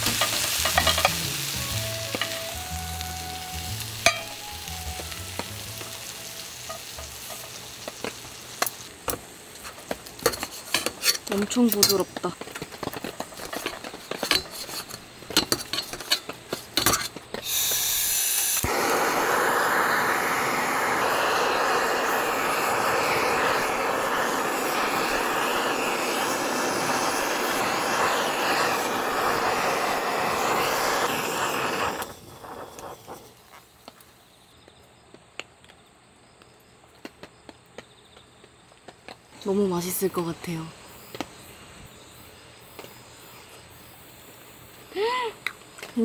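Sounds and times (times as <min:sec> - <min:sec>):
butane torch burning: 0:00.0 - 0:37.8, 0:38.4 - 0:46.0
knife and tongs clinking on plate: 0:00.2 - 0:01.2.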